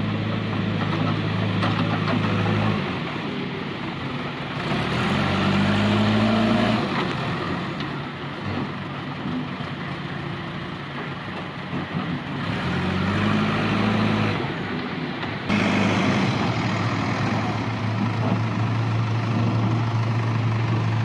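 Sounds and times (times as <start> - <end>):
diesel engine running: 0.0 - 21.0.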